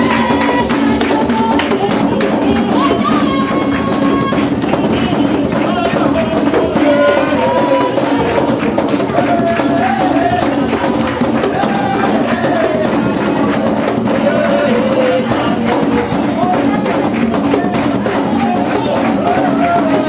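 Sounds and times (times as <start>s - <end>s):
hands clapping: 0.0s - 20.0s
percussion: 0.0s - 20.0s
women singing together: 0.0s - 20.0s.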